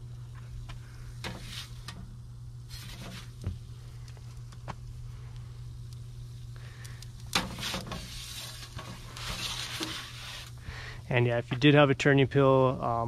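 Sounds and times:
steady low hum: 0.0 - 13.0
light scrapes: 2.7 - 3.4, 7.4 - 10.6.

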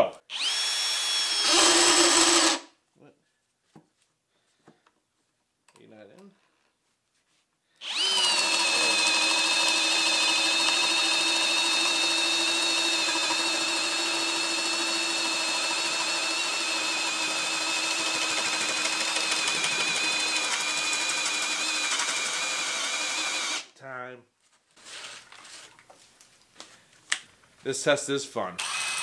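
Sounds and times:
drill motor whining: 0.3 - 2.7, 7.8 - 23.7, 28.6 - 29.0.

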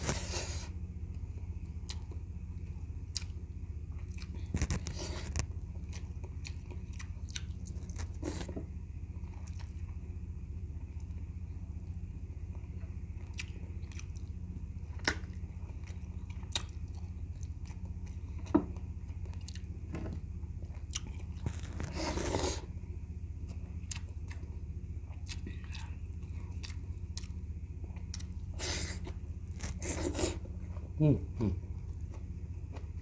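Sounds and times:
steady low hum: 0.0 - 33.0
man chewing: 3.1 - 8.6, 9.2 - 9.9, 13.2 - 19.7, 20.6 - 22.7, 23.4 - 33.0.

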